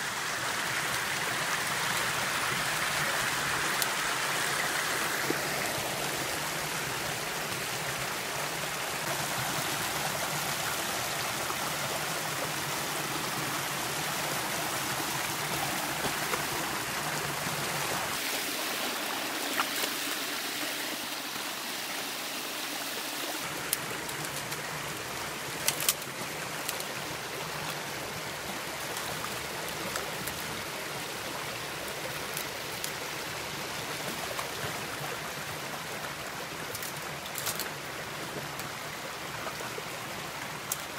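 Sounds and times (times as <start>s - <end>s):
creek babbling over stones: 0.0s - 40.9s.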